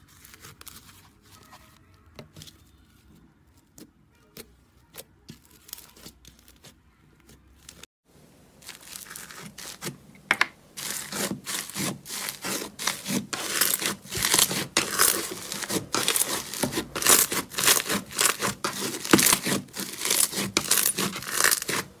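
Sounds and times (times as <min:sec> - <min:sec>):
slime crackling and tearing: 0:08.6 - 0:09.9, 0:10.8 - 0:22.0.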